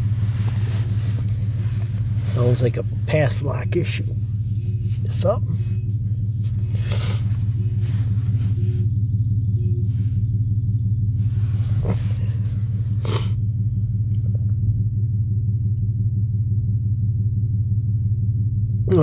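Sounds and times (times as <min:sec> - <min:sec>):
vehicle horn low drone: 0:00.0 - 0:13.4.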